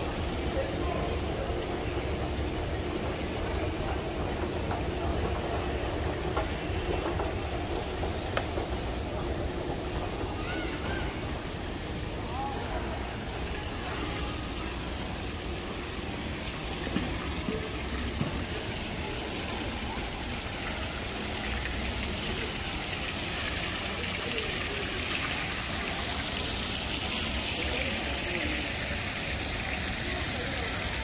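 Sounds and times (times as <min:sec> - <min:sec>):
faint indistinct voices: 0:00.0 - 0:31.0
street ambience: 0:00.0 - 0:31.0.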